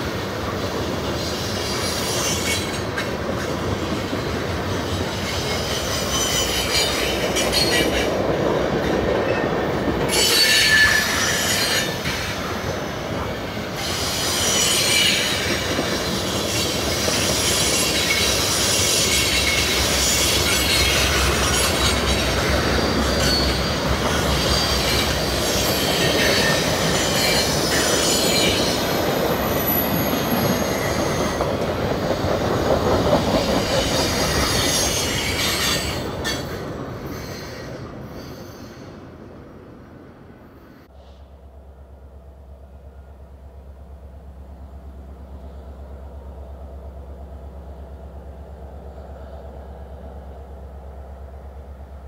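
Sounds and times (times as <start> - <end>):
train wheels clattering on rails: 0.0 - 39.0.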